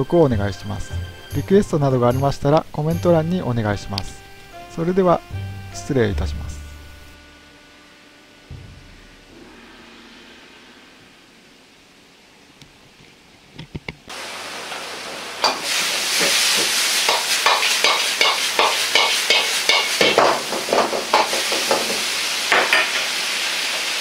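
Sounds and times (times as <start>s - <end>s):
food sizzling in a wok: 14.1s - 24.0s
metal ladle scraping a wok: 15.5s - 21.5s.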